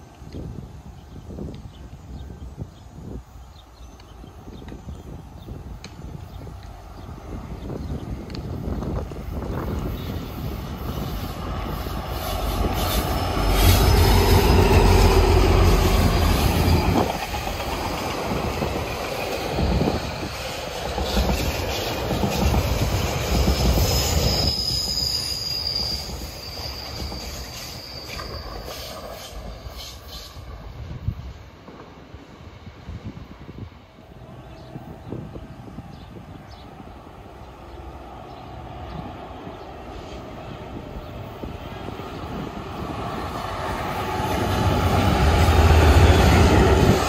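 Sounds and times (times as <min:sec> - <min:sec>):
diesel locomotive deep rumble: 0:01.9 - 0:47.0
train wheels rolling: 0:05.6 - 0:32.8, 0:36.9 - 0:47.0
high wheel squeal: 0:19.3 - 0:30.4.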